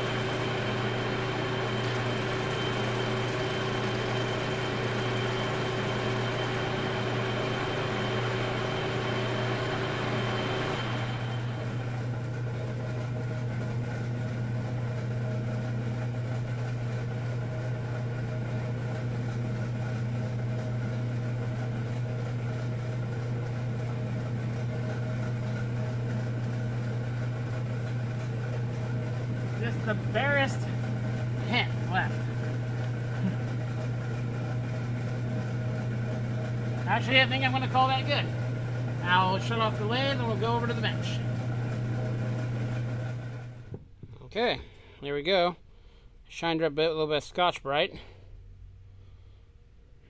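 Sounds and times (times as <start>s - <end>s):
whining tones: 0.0s - 12.0s
lathe motor hum: 0.0s - 43.8s.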